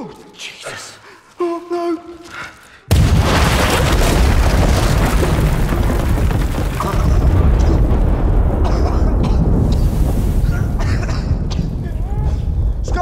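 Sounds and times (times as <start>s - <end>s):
explosion blast: 2.9s - 13.0s
rumble of tunnel caving in: 4.1s - 13.0s.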